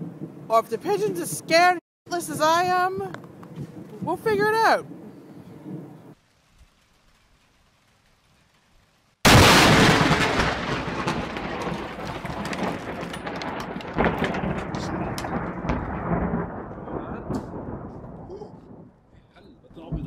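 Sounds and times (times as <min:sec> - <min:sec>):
crackling rumbling thunder: 0:03.6 - 0:20.0
loud thunderclap: 0:09.2 - 0:20.0.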